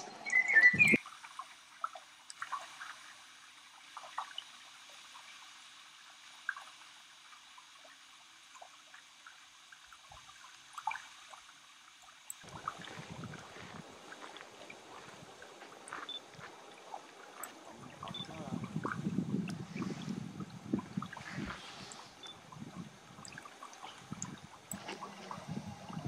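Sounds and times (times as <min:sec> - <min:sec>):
wavelets lapping at shore: 0:10.1 - 0:26.0.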